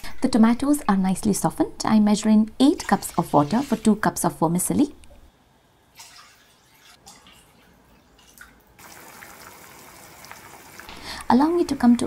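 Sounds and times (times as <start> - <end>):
water pouring into a pan: 8.8 - 12.0.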